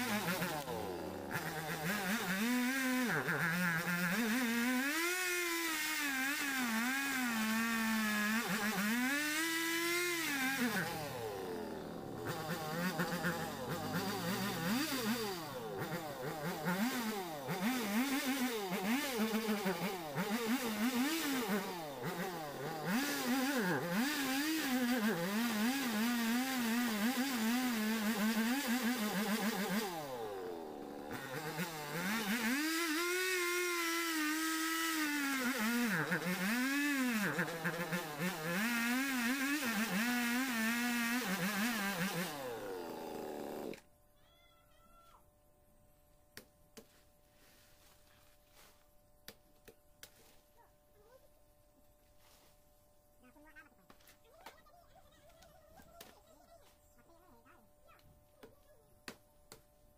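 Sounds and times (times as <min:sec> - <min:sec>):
chainsaw revving: 0:00.0 - 0:43.9.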